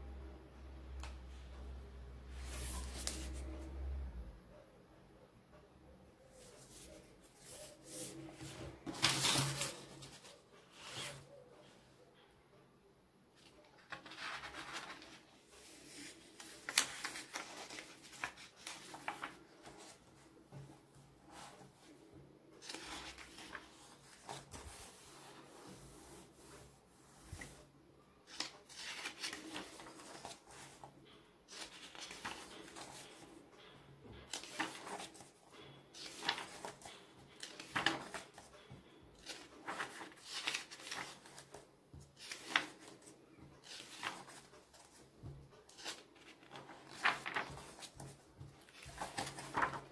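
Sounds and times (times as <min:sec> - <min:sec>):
paper pages turning: 0:02.3 - 0:03.7, 0:06.4 - 0:11.3, 0:13.4 - 0:20.7, 0:22.6 - 0:30.9, 0:31.5 - 0:33.4, 0:34.2 - 0:49.9.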